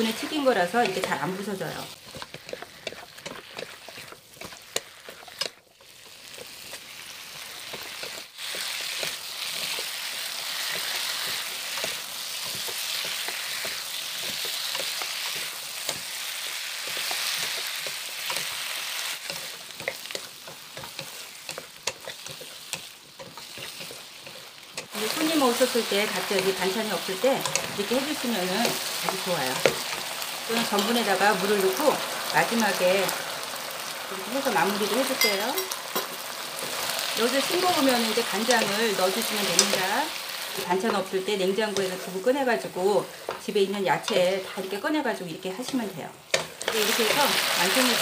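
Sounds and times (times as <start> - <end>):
food sizzling in a wok: 0.0 - 48.0
wooden spatulas clicking on pan: 10.6 - 30.9, 37.9 - 39.9, 45.7 - 48.0.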